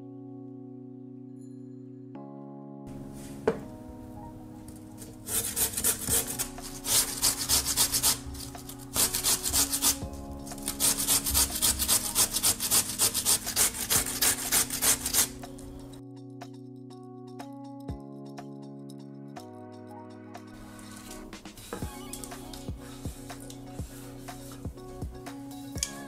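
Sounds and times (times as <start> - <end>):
potato rasping on metal grater: 5.3 - 10.0, 10.6 - 15.4.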